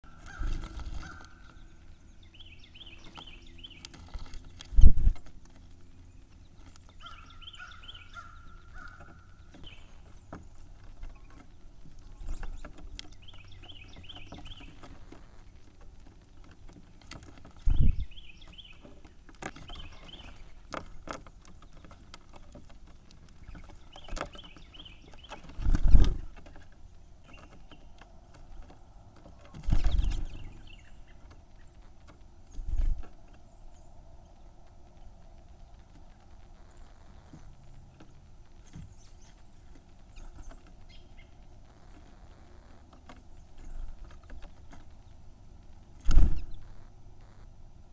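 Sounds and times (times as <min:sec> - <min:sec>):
bird trilled song: 0:00.0 - 0:22.6, 0:23.2 - 0:47.6
wings thumping against feeder: 0:23.4 - 0:26.6.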